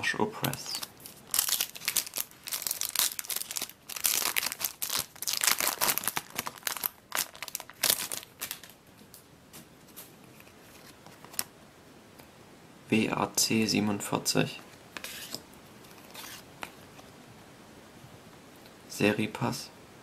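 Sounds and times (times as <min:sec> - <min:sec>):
foil wrapper tearing and crinkling: 0:00.4 - 0:08.8.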